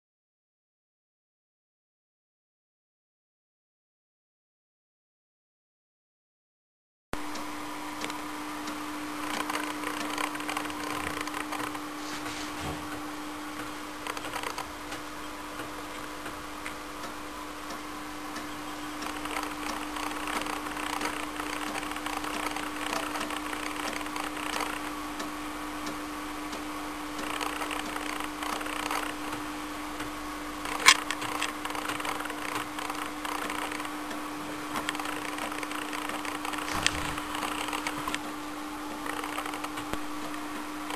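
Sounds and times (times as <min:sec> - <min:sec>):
disk drive hum: 0:07.2 - 0:40.9
floppy drive head clicking: 0:08.0 - 0:11.8, 0:30.0 - 0:34.0.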